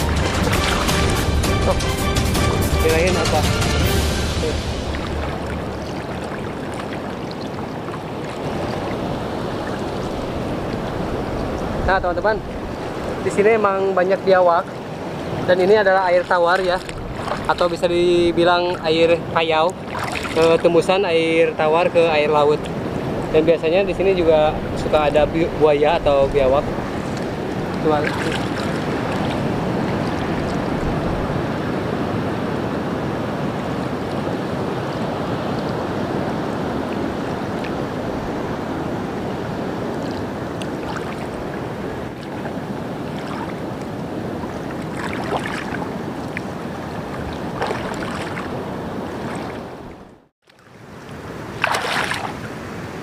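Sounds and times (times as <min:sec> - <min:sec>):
water sloshing around wader: 0:00.0 - 0:23.4, 0:24.6 - 0:32.1, 0:33.6 - 0:53.0
wind on microphone: 0:04.2 - 0:13.6, 0:21.7 - 0:50.2.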